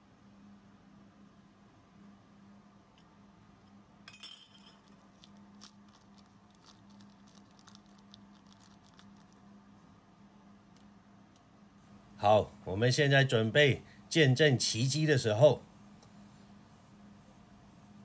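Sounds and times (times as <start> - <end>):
steady low hum: 0.0 - 18.0
light clink: 4.1 - 5.0.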